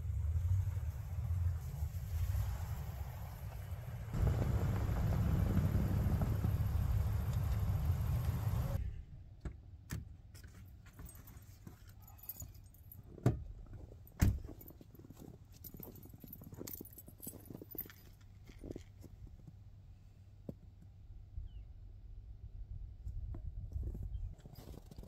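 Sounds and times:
low rumbling noise: 0.0 - 9.2.

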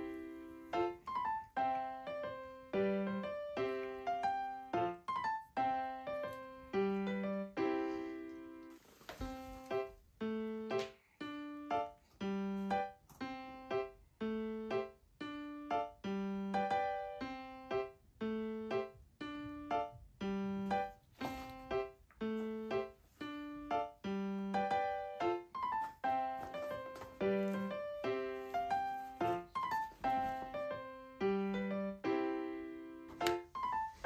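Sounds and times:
simple keyboard melody: 0.0 - 34.0.

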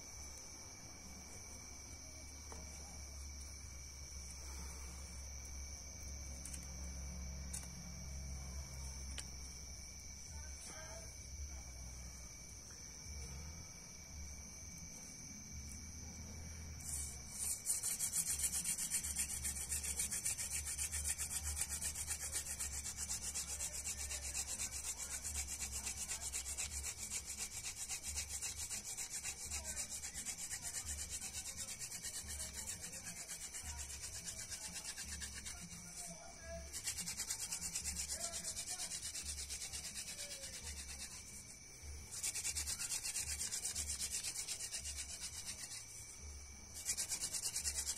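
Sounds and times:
hand drill scratching wood: 16.9 - 46.1, 46.7 - 47.9.

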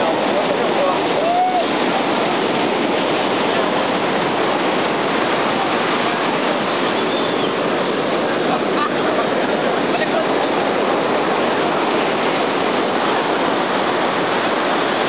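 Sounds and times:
ocean surf breaking on beach: 0.0 - 15.0.

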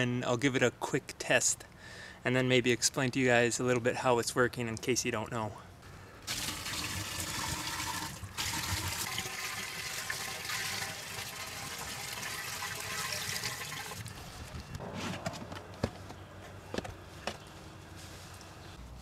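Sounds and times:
water pouring through funnel: 6.3 - 14.1.

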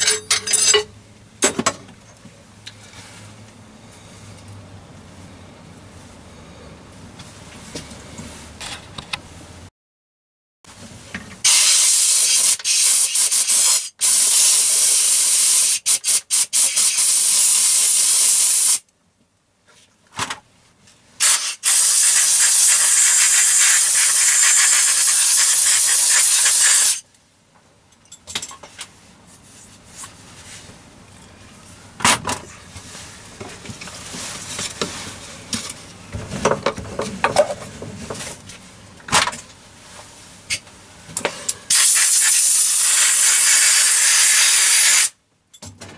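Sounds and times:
compressed air blow gun hissing: 11.5 - 18.8, 21.2 - 27.0, 41.7 - 45.1.

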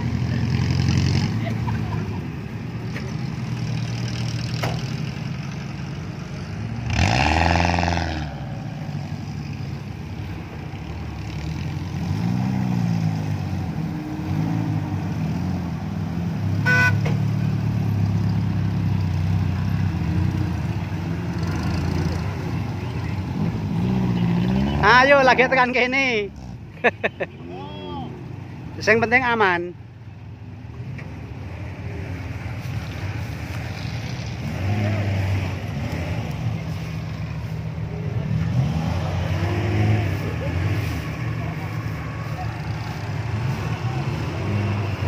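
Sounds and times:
off-road engines revving: 0.0 - 45.0
car horn toot: 16.6 - 17.2.

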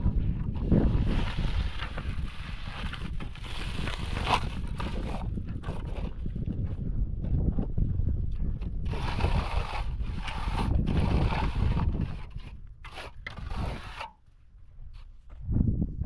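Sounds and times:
wind buffeting microphone: 0.0 - 16.0
scraping rustling noise: 0.4 - 6.2, 8.9 - 15.3.

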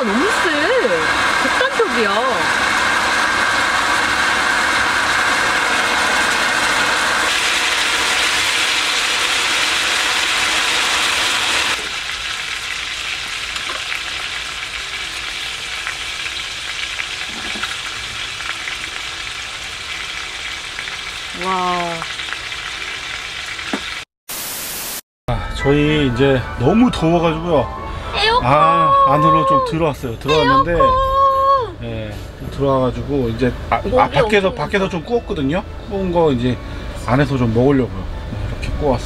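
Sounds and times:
gas burner flame hissing: 0.0 - 25.0
meat sizzling in a pan: 0.0 - 25.0.

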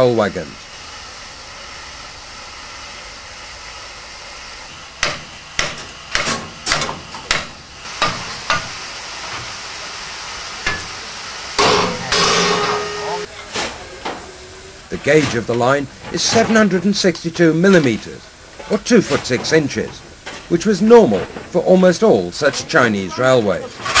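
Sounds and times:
steam hissing: 0.0 - 24.0
sharp metal knocks: 5.0 - 8.7, 11.6 - 12.9.

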